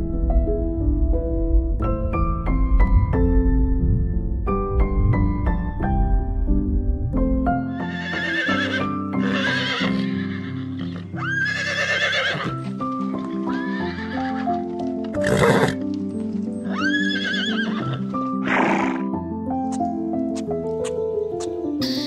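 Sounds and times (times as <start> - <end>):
background music with held notes: 0.0 - 22.0
horse whinnying: 7.7 - 12.7, 13.3 - 14.5, 15.1 - 15.8, 16.6 - 19.1.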